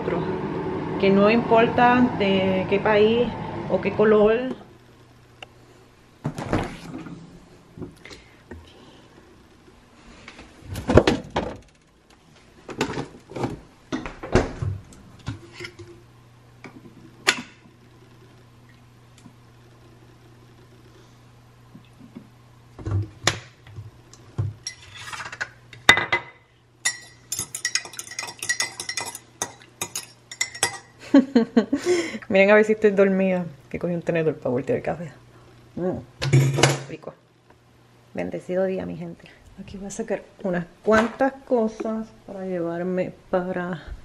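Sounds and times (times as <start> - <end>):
low steady hum: 0.0 - 44.0
fork clinking in ceramic mug: 26.8 - 30.9
mug and containers clattering: 26.9 - 30.9.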